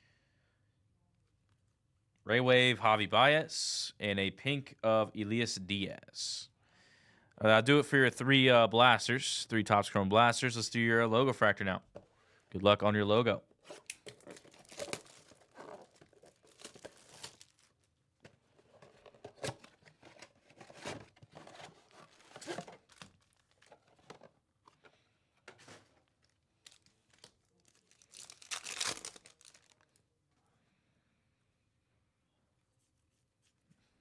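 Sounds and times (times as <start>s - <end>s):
cardboard box tearing: 13.8s - 17.7s, 19.3s - 23.7s
wrappers ripping and crinkling: 13.8s - 17.9s, 20.6s - 24.0s, 25.6s - 30.0s.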